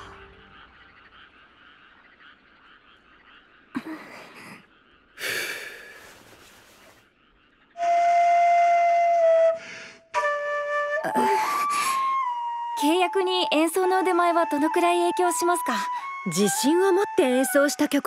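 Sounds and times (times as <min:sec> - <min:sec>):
flute notes: 0:07.8 - 0:18.0.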